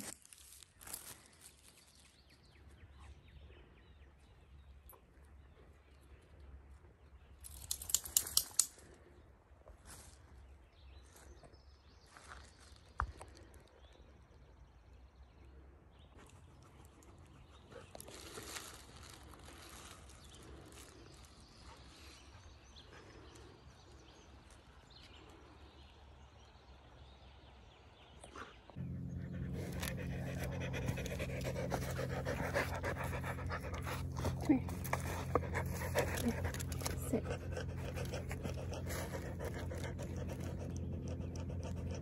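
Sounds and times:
faint outdoor background: 0.0 - 42.0
dog panting loudly: 28.8 - 42.0.

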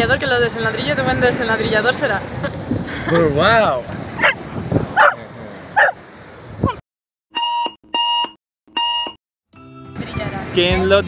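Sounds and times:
outdoor wind noise: 0.0 - 6.8.

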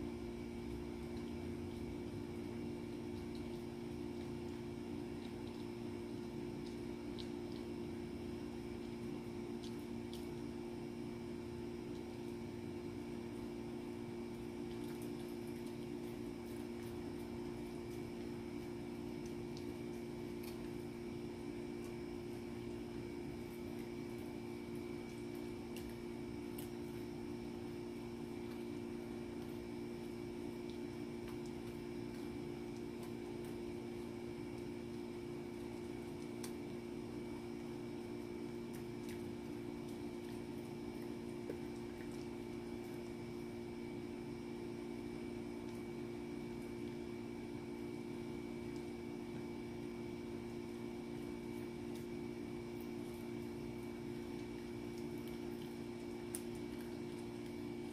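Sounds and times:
steady low hum: 0.0 - 57.9
dog chewing clicks: 0.8 - 10.7, 14.2 - 43.4, 51.5 - 57.9.

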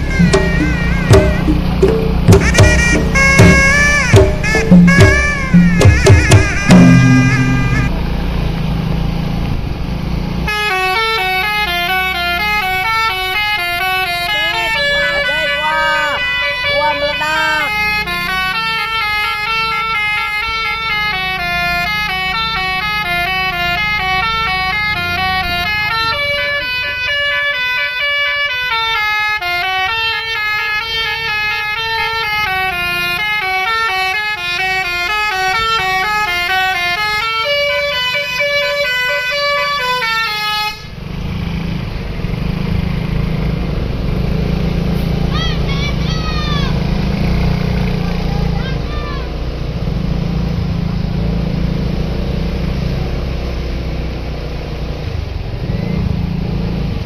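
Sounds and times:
musical air horn melody: 0.0 - 8.0, 10.5 - 41.0
coach engine rumbling: 0.0 - 27.6, 30.2 - 52.0.

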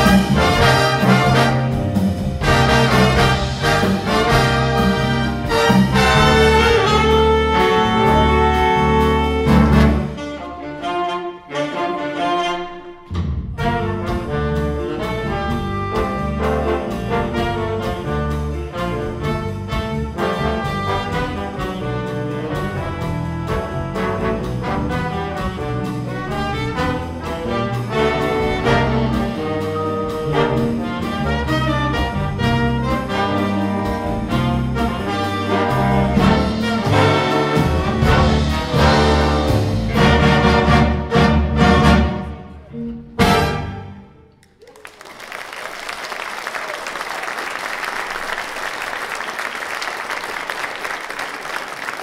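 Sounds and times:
big band playing jazz: 0.0 - 52.0
audience applause: 44.4 - 52.0.

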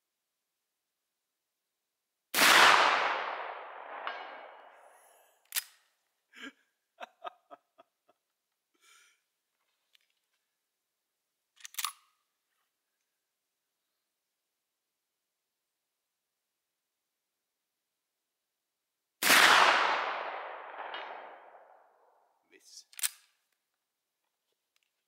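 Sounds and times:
rifle shot with echo: 2.4 - 5.2, 19.2 - 21.9.

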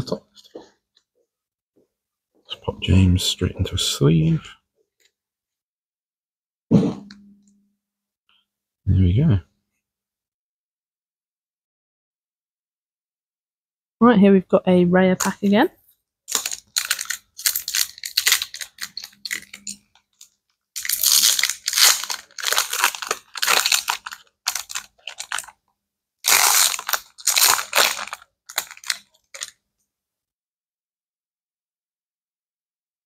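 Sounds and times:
foil wrapper crinkling and tearing: 16.3 - 25.6, 26.2 - 29.6.

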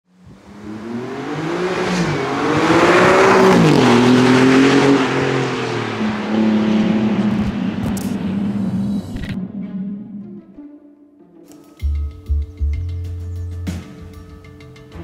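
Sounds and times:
car engine accelerating past: 0.2 - 10.6.

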